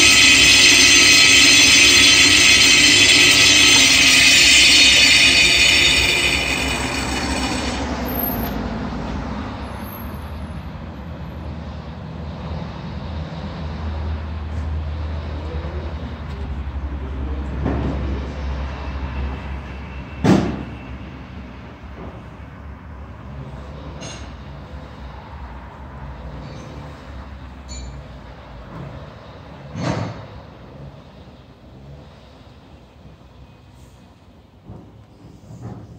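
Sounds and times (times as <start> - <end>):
saw motor humming: 0.0 - 8.6
tile saw cutting tile: 0.0 - 8.6.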